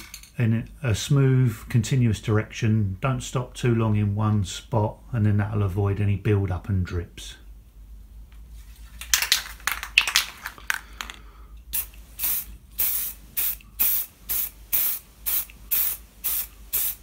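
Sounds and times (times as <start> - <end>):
spray paint hissing: 11.7 - 17.0.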